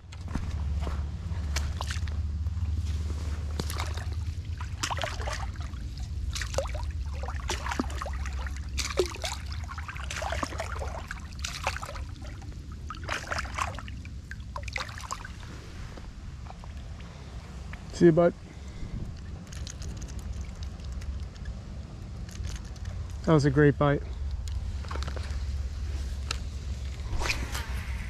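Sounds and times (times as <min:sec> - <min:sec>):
low rumble: 0:00.0 - 0:28.0
fish splashing in shallow water: 0:01.5 - 0:02.2, 0:03.3 - 0:17.9.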